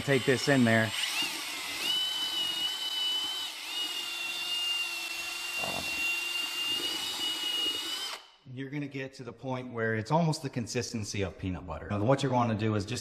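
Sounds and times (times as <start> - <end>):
drill mixing mortar: 0.0 - 8.3.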